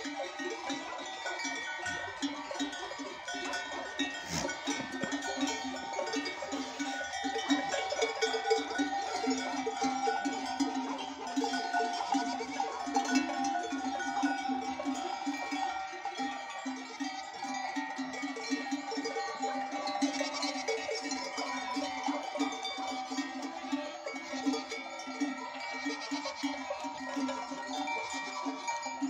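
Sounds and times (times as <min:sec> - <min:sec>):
goat bells clanking: 0:00.0 - 0:29.0
goat kids bleating: 0:00.6 - 0:10.6, 0:16.9 - 0:17.4, 0:19.9 - 0:29.0.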